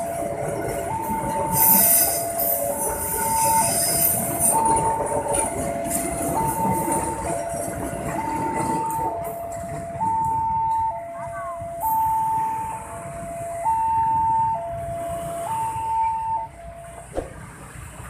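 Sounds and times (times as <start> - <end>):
train rolling: 0.0 - 18.0
two-tone crossing alarm: 0.0 - 18.0
train wheels squealing: 1.2 - 8.5.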